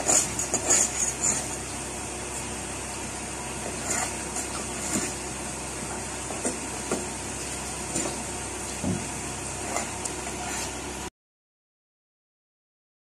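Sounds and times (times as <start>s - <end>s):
metal scraper scraping barnacles: 0.0s - 1.7s, 3.6s - 5.3s, 7.9s - 8.2s, 9.6s - 10.8s.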